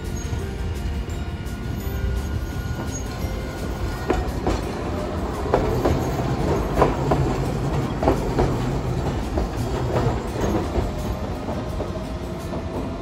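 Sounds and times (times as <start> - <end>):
streetcar low rumble: 0.0 - 13.0
wheels clacking over track joints: 0.0 - 13.0.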